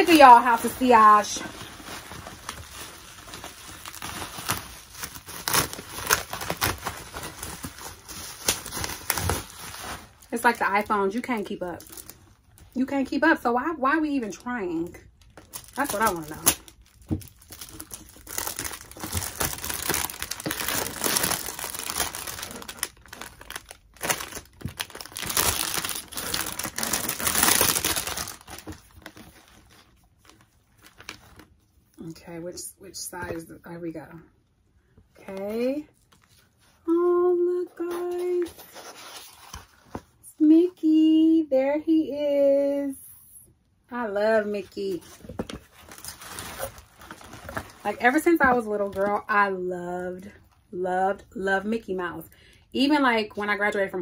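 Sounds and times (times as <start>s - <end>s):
bubble wrap crackling: 0.0s - 12.8s, 15.1s - 31.7s, 44.8s - 48.3s.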